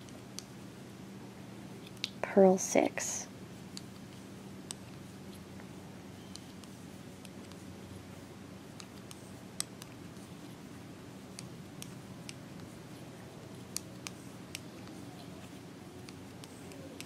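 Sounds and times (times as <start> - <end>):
steady low hum: 0.0 - 17.0
knitting needles clicking: 1.8 - 2.2, 16.0 - 17.0.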